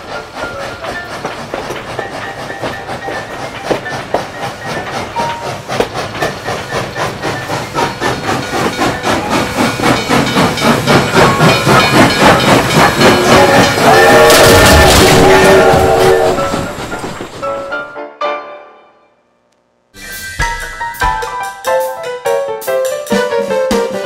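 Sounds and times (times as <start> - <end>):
steam locomotive chuffing: 0.0 - 17.8.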